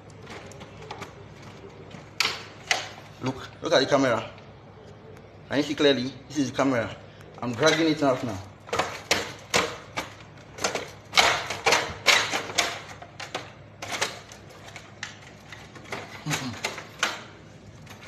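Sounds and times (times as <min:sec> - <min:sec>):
plastic casing clicking and rattling: 0:08.6 - 0:18.0.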